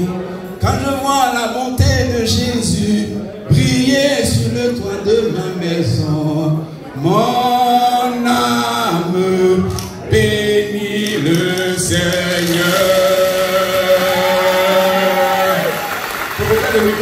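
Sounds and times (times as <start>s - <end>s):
man singing into a microphone: 0.0s - 15.8s, 16.4s - 17.0s.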